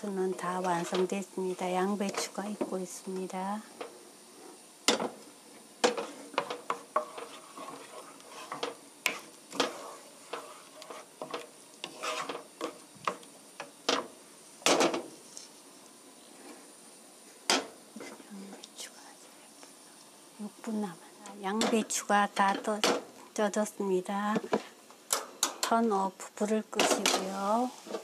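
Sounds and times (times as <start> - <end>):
wooden spoon scraping a pan: 0.3 - 15.6, 26.8 - 28.0
pan clunking on stove grate: 4.9 - 5.2, 13.8 - 15.1.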